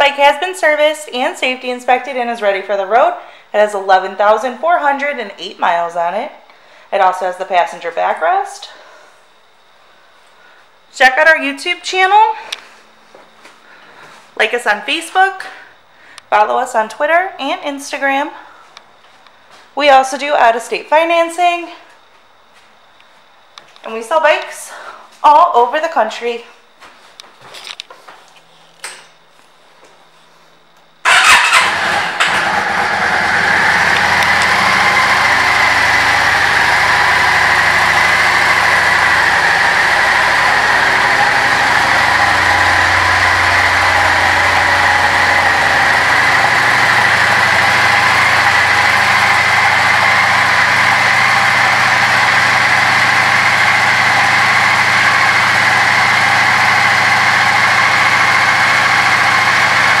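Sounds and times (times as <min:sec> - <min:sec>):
motorcycle engine starting and idling: 0:31.0 - 1:00.0.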